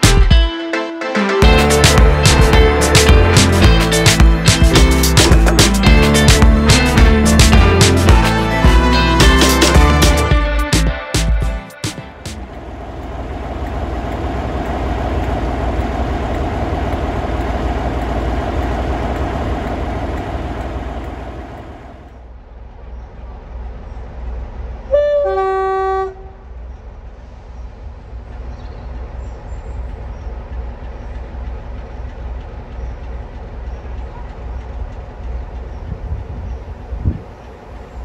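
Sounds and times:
diesel locomotive engine rumble: 1.4s - 11.3s, 11.9s - 38.0s
two-tone locomotive horn: 24.8s - 26.5s.

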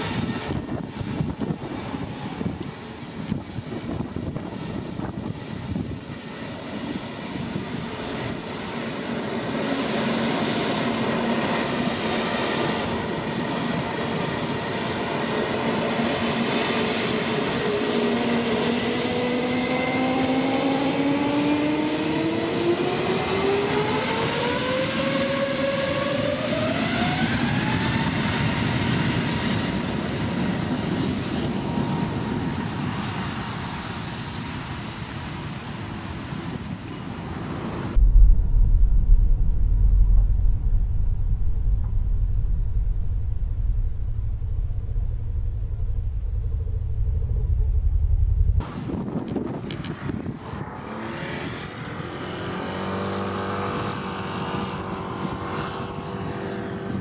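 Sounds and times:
jet engines spooling up: 37.9s - 49.2s.

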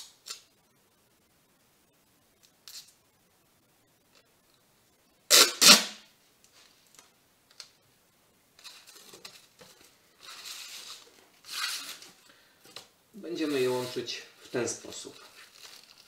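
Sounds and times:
packing tape pulled off roll: 5.3s - 6.0s, 10.2s - 12.2s, 15.2s - 16.0s
foil cardboard crinkling: 13.6s - 16.0s.

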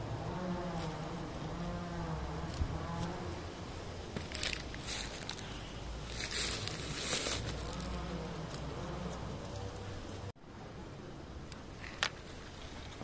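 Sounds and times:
dry leaves and twigs rustling: 2.3s - 10.3s.

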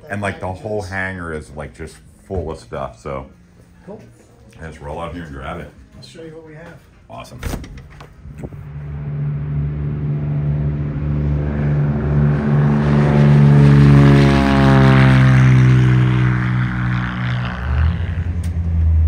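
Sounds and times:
propeller airplane taking off: 8.1s - 19.0s.

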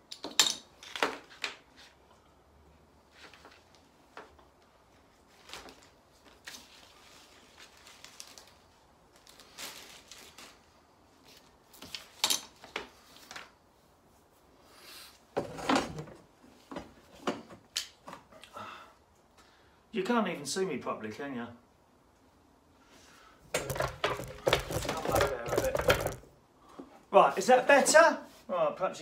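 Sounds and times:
plastic parts clicking and rattling: 23.5s - 26.3s.

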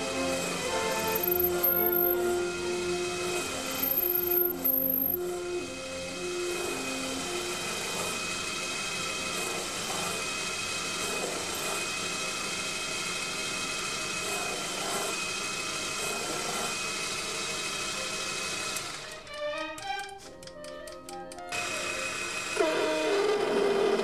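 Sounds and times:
metal cutting hiss: 0.0s - 8.3s
lathe motor whine: 0.0s - 19.3s, 21.5s - 24.0s.

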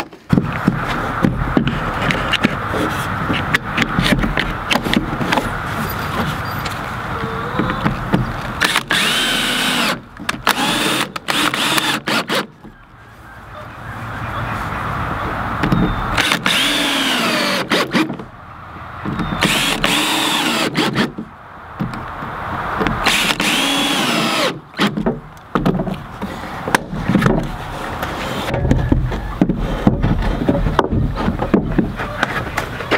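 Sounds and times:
cordless drill whining into wood: 8.6s - 12.5s, 16.2s - 18.1s, 19.4s - 21.1s, 23.0s - 24.9s.

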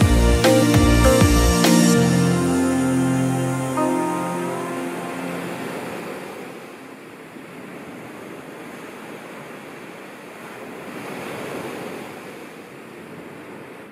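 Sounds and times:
small waves washing on shore: 4.6s - 13.9s.

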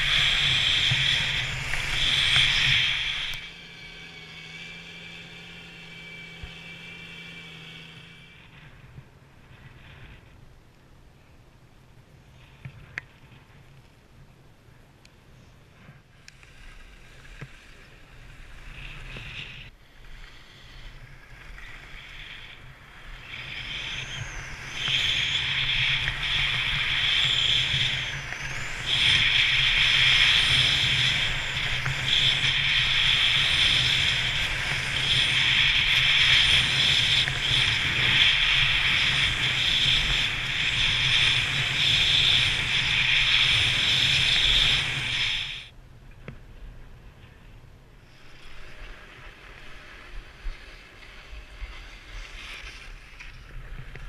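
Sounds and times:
skis sliding on snow: 0.0s - 3.5s, 15.6s - 45.7s, 48.0s - 54.0s
wind on microphone: 0.0s - 3.5s, 15.6s - 54.0s.

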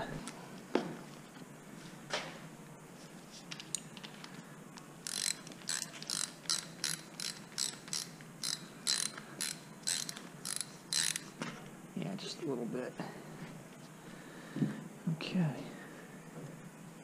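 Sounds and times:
ratchet wrench clicking: 5.0s - 11.3s.

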